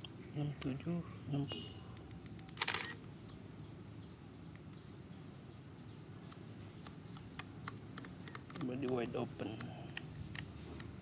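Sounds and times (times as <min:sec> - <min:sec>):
camera dial clicks: 0:02.5 - 0:03.0, 0:07.4 - 0:09.7
camera shutter snap: 0:02.5 - 0:03.0.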